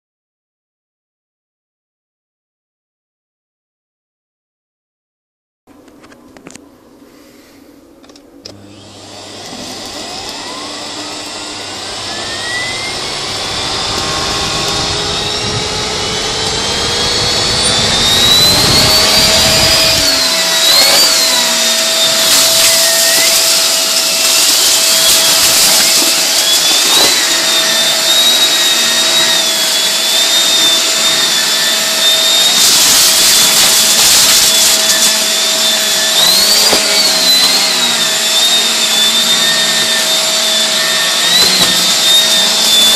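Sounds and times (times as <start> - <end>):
vacuum cleaner motor whining: 8.4 - 42.9
vacuum sucking paper: 8.5 - 42.9.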